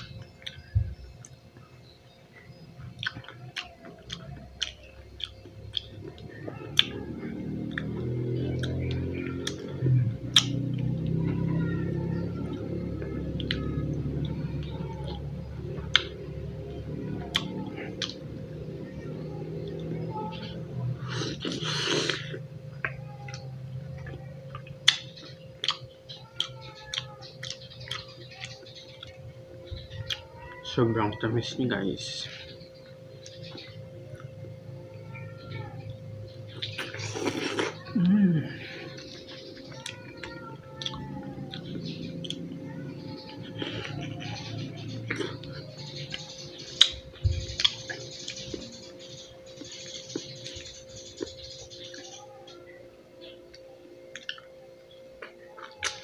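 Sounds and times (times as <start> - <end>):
person chewing wetly: 2.8 - 9.7, 10.3 - 11.2, 17.2 - 18.2, 21.0 - 29.2, 36.5 - 38.1, 46.8 - 48.7, 54.1 - 54.5.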